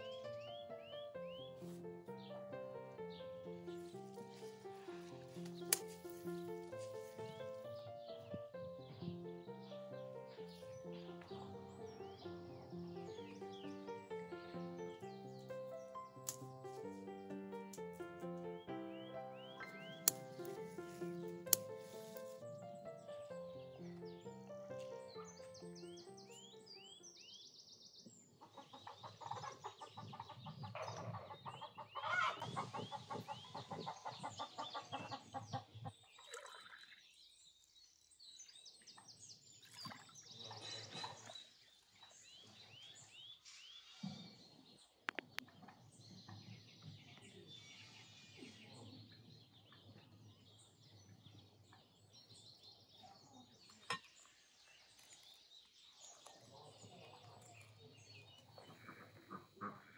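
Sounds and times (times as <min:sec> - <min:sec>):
small birds chirping: 0:00.0 - 0:59.9
sharp clicks: 0:19.6 - 0:22.3
chickens clucking: 0:28.4 - 0:35.9, 0:58.5 - 0:59.9.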